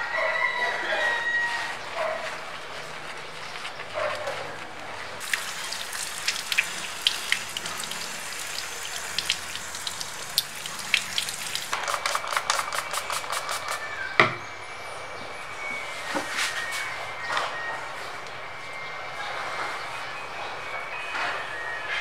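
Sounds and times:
hose water splashing: 5.2s - 13.8s.

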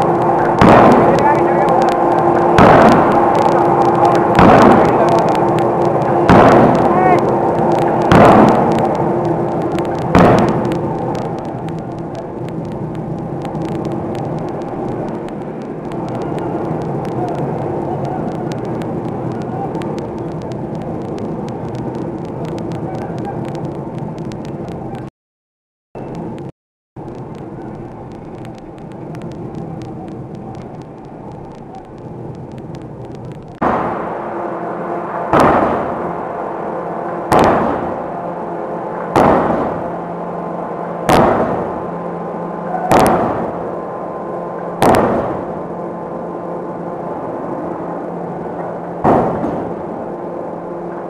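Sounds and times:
forging hammer running noise: 0.0s - 24.5s
steady machine hum: 0.0s - 25.1s, 26.0s - 51.0s
faint ticks: 27.0s - 33.6s.

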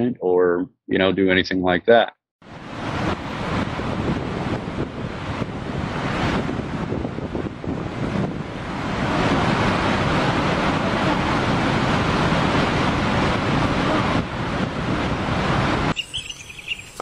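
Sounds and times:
water roaring over spillway: 2.5s - 15.9s
faint bird chirps: 15.9s - 17.0s.

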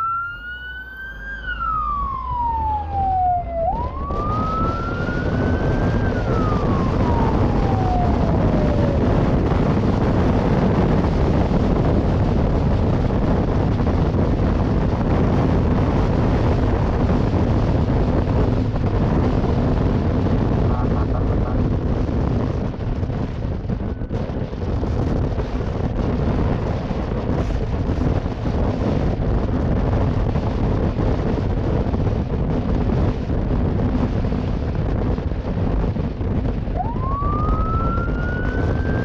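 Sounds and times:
motorcycle siren wailing: 0.0s - 11.9s, 13.4s - 21.8s, 22.4s - 26.0s, 36.5s - 39.0s
wind rush on microphone: 0.0s - 39.0s.

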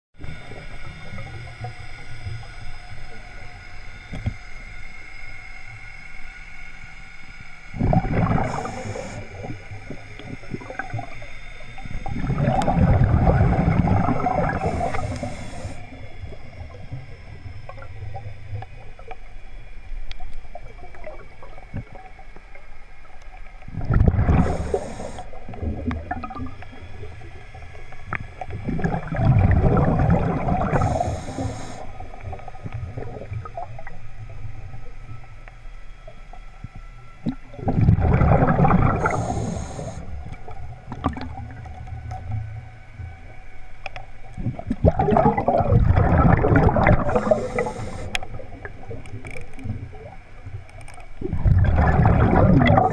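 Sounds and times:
faint steady hum: 0.2s - 52.9s
bubbling exhalations underwater: 7.8s - 11.1s, 12.1s - 15.3s, 23.7s - 26.5s, 28.6s - 31.2s, 37.3s - 39.6s, 44.4s - 49.0s, 51.2s - 52.9s
regulator hissing: 14.5s - 16.0s, 24.4s - 25.4s, 30.6s - 31.9s, 39.0s - 40.2s, 47.0s - 48.2s.

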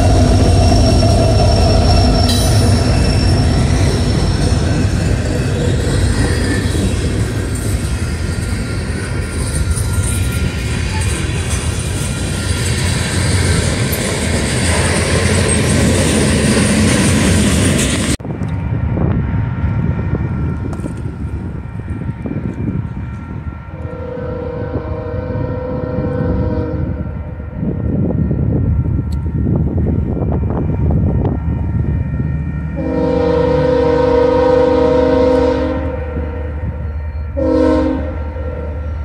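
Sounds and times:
freight train rumbling past: 0.0s - 39.0s
train horn chord: 21.7s - 27.8s, 32.7s - 39.0s.

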